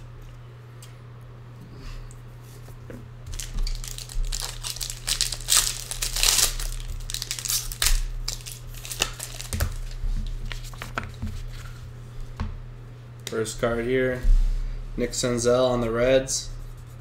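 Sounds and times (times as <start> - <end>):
foil wrapper crinkling and tearing: 3.3 - 11.0.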